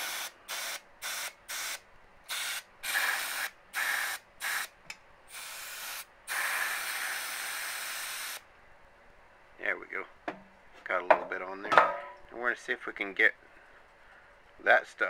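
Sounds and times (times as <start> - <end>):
aerosol can spraying: 0.0 - 4.7, 5.3 - 8.4.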